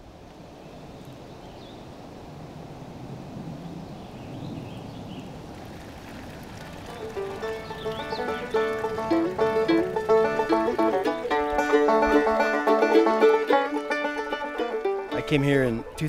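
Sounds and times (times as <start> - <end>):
outdoor ambient noise: 0.0 - 16.0
faint bird chirps: 6.9 - 8.8
plucked banjo melody: 6.9 - 16.0.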